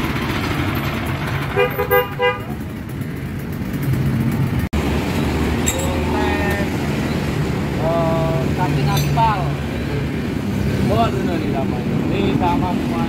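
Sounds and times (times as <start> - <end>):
street traffic hum: 0.0 - 13.0
vehicle horn toots: 1.5 - 2.6.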